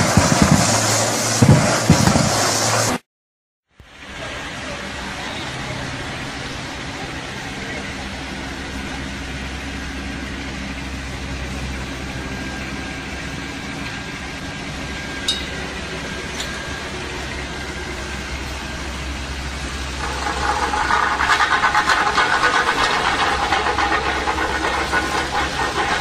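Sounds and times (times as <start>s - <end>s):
diesel engine running: 0.0s - 3.0s, 3.8s - 26.0s
rapidly pulsing rattle: 15.2s - 26.0s.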